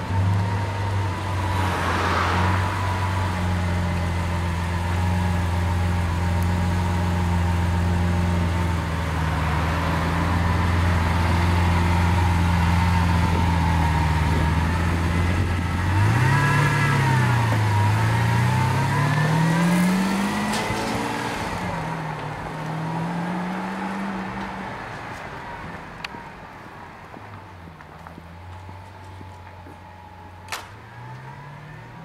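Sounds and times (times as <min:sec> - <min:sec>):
sports car engine revving: 0:00.1 - 0:24.4.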